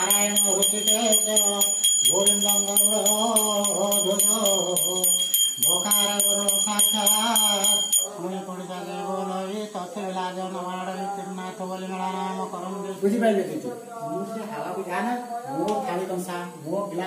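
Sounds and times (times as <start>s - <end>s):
handbell ringing rapidly: 0.0s - 8.1s
person chanting: 0.0s - 17.0s.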